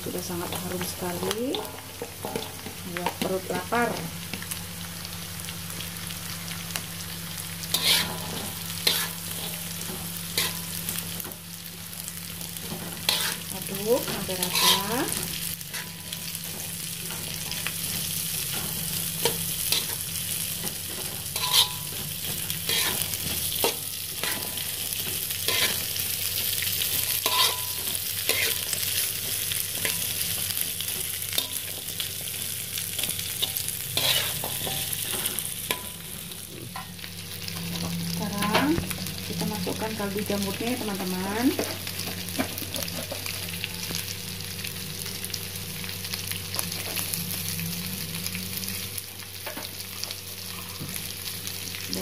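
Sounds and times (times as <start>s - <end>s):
frying sizzle: 0.0s - 52.0s
metal spatula scraping a wok: 7.7s - 10.8s, 12.6s - 13.6s, 14.3s - 20.0s, 20.6s - 26.1s, 26.8s - 29.1s, 33.0s - 36.0s.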